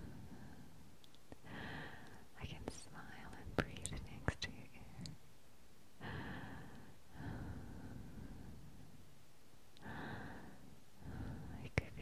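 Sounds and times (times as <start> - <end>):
slow breathy exhales: 9.8 - 11.5.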